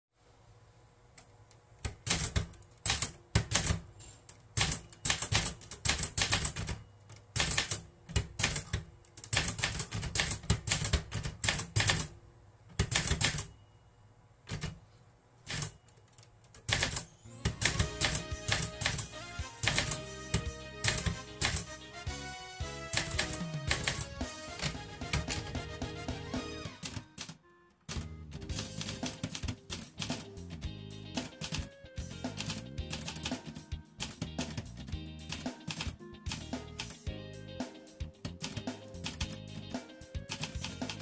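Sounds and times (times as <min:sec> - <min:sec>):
typewriter keys clacking: 0:01.8 - 0:12.1, 0:12.8 - 0:13.5, 0:15.4 - 0:21.7, 0:22.9 - 0:25.5, 0:26.8 - 0:30.4, 0:31.2 - 0:31.7, 0:32.3 - 0:37.0, 0:38.2 - 0:41.0
music: 0:17.0 - 0:41.0.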